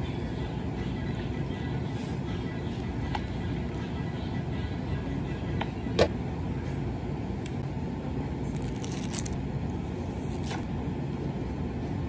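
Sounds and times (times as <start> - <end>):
steady low hum: 0.0 - 12.0
straw wrapper tearing: 8.5 - 9.4, 10.1 - 10.7.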